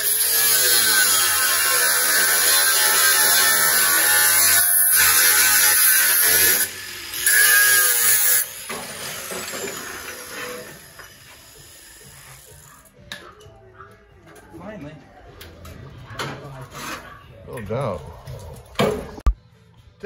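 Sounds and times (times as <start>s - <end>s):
angle grinder cutting sheet metal: 0.0s - 12.7s.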